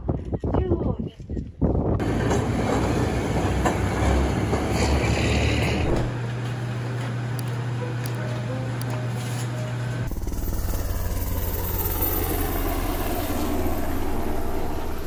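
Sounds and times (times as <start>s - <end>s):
streetcar rumbling on tracks: 2.0s - 10.1s.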